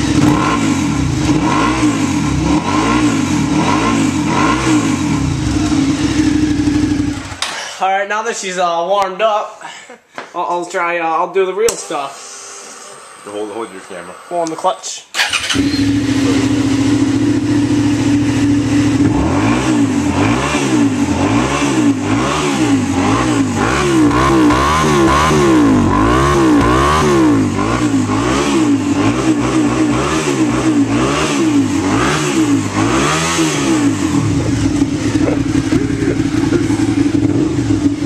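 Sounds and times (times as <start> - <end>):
motorcycle engine revving: 0.0 - 7.5, 15.2 - 38.0
motorcycle engine idling: 4.9 - 7.4, 15.2 - 19.3, 33.6 - 38.0.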